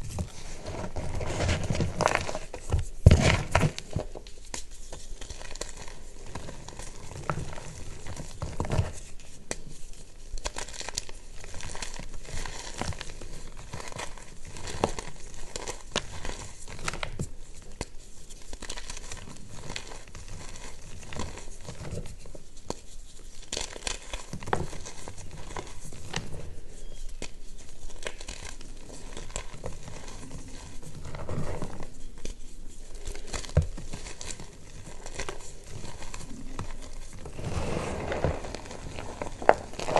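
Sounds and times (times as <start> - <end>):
chalk crunching in hands: 17.7 - 39.9.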